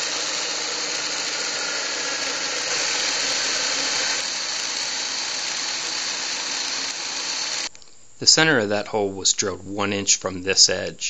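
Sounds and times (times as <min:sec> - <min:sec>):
drill press boring wood: 0:00.0 - 0:07.7.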